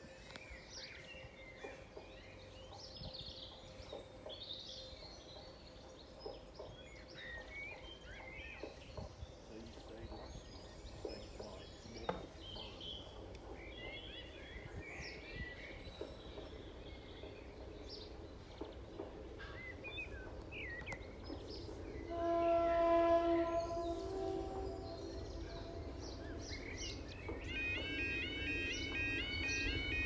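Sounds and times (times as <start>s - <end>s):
birds chirping and singing: 0.0s - 30.0s
low outdoor background noise: 0.0s - 30.0s
steady horn-like tone: 22.0s - 26.8s.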